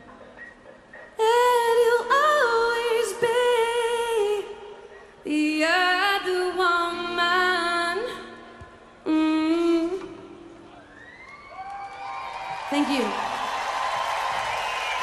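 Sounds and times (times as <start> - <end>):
woman singing wordless notes: 1.2 - 10.5.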